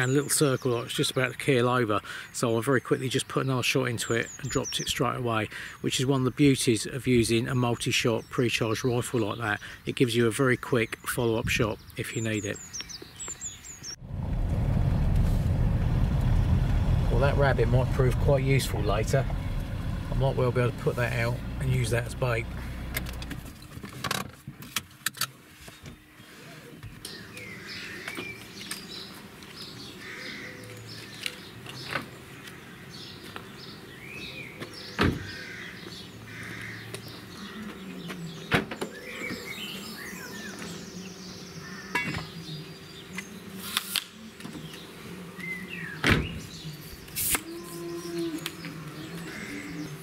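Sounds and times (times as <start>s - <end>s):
small birds chirping: 0.0s - 14.0s, 16.0s - 23.6s, 25.6s - 50.0s
car doors and gear clunking: 14.2s - 24.3s.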